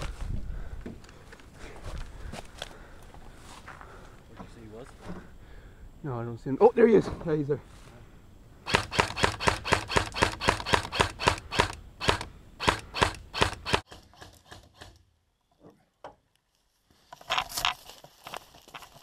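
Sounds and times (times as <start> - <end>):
rustle of movement: 0.0 - 5.7, 16.4 - 19.0
airsoft rifle shots: 8.6 - 14.9.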